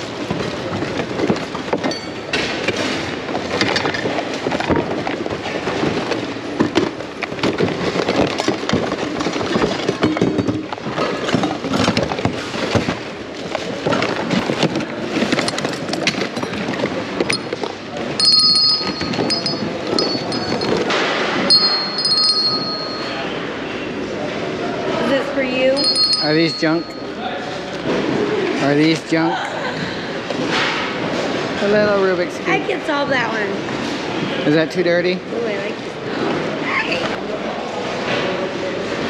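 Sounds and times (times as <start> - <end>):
plastic items clattering: 0.0 - 23.2
murmur of busy hall: 0.0 - 39.0.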